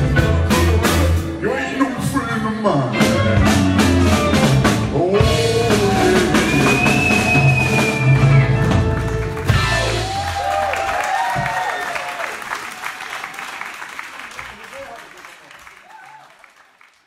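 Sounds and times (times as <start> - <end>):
rock band playing: 0.0 - 11.5.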